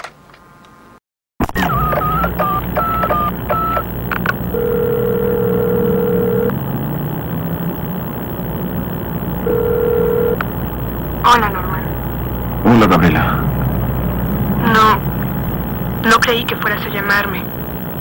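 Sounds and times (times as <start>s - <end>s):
telephone ringing tone: 1.4s - 18.0s
keypad dialing beeps: 1.6s - 6.6s, 9.4s - 11.2s
steady low hum: 1.6s - 18.0s.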